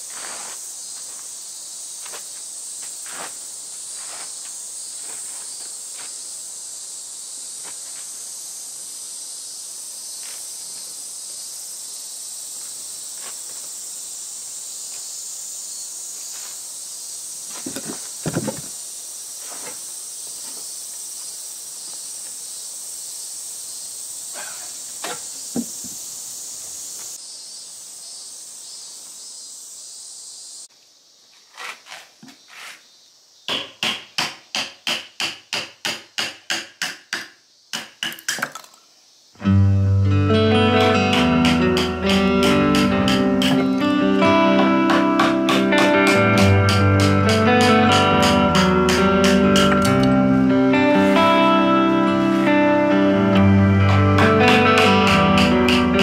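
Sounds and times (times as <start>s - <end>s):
cicadas droning: 0.0s - 56.0s
heavy wooden thumps: 17.6s - 18.7s
mallet knocking chisel into wood: 33.5s - 38.8s.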